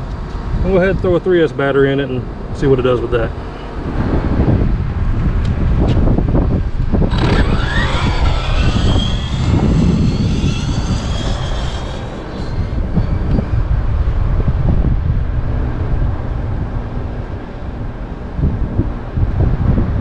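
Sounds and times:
wind rumble on microphone: 0.0s - 1.5s, 2.2s - 20.0s
electric motor whining: 6.6s - 14.6s.

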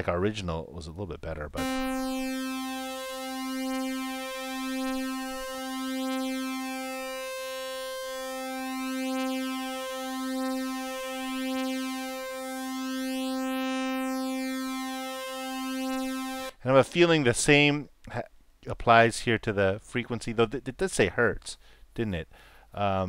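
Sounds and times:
buzzy synthesizer tone: 1.6s - 16.6s.

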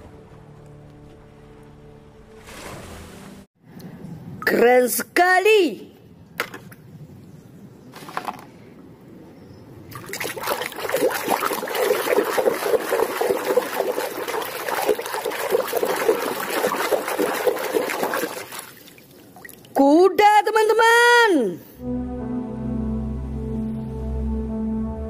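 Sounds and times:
water splashing in a tub: 9.9s - 19.8s.

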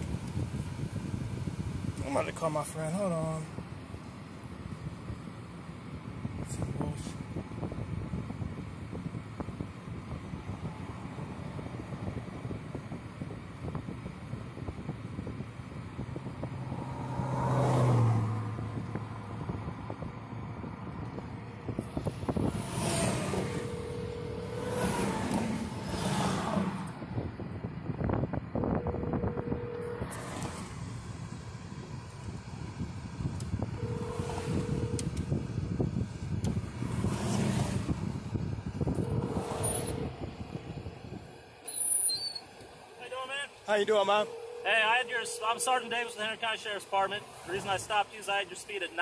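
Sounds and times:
vehicles rushing by: 14.3s - 49.0s
low engine drone: 16.2s - 49.0s.

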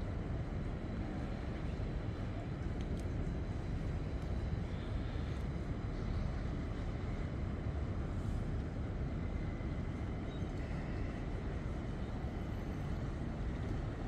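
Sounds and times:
boat engine low rumble: 0.0s - 14.0s.

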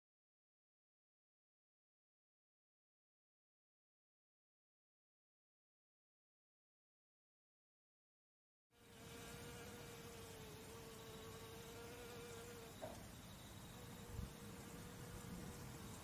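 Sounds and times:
honeybee buzzing: 8.8s - 16.0s.

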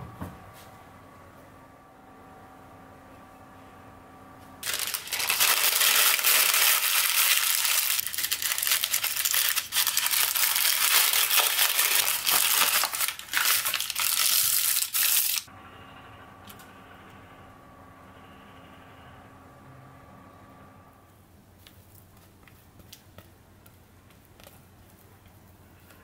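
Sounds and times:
baking paper crinkling: 4.6s - 15.5s.

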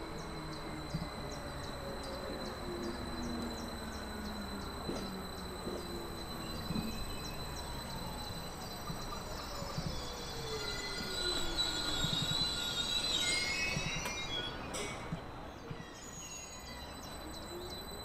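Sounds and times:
electric train traction whine: 0.0s - 18.0s
high brake squeal: 0.4s - 18.0s.

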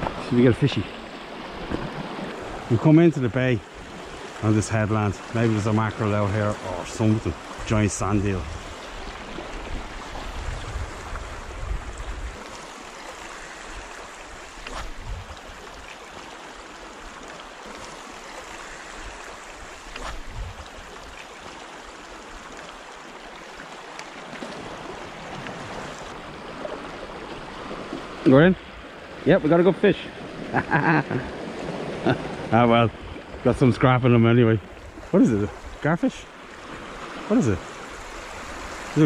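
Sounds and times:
waves washing over rocks: 36.6s - 39.0s.

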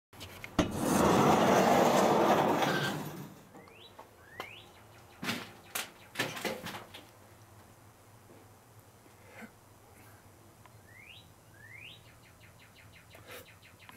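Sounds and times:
bird chirping: 3.5s - 6.2s, 10.7s - 13.9s.

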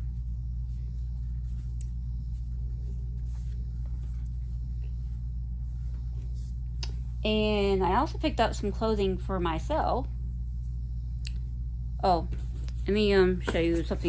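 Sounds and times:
clothing rustling: 0.0s - 7.2s
low room hum: 0.0s - 14.0s.

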